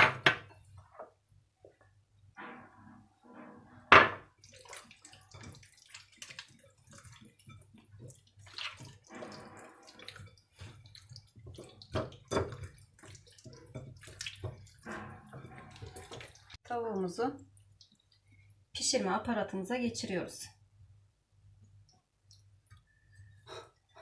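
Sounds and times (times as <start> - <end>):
wet squelching of oily chicken: 4.4 - 16.6.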